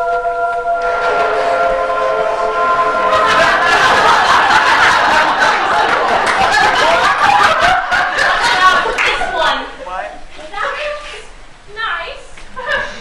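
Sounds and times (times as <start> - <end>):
audience laughing: 1.0 - 9.6.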